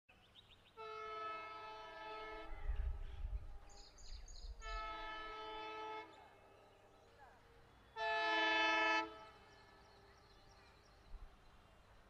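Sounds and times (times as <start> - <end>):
locomotive air horn blasts: 0.8 - 2.6, 4.6 - 6.2, 8.0 - 9.5.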